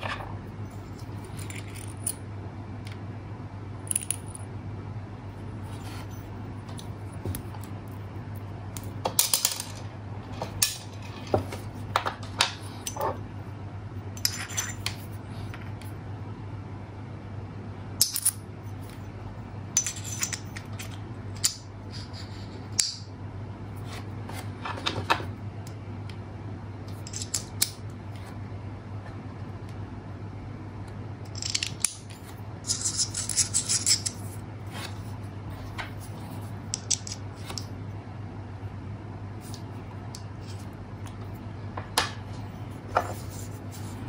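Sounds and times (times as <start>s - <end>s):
steady low hum: 0.0s - 44.0s
metal parts clicking: 19.8s - 21.6s, 26.9s - 27.8s, 31.3s - 34.3s, 36.7s - 37.6s.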